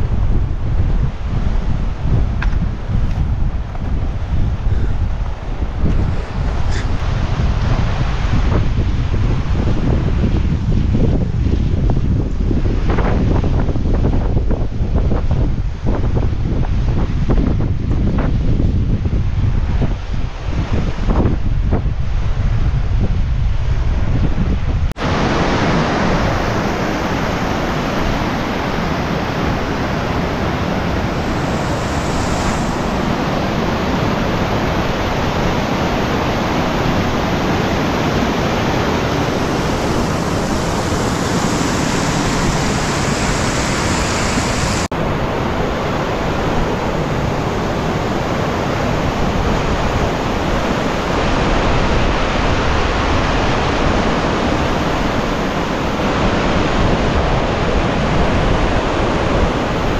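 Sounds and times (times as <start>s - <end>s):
river rushing: 1.1s - 10.3s, 25.0s - 59.9s.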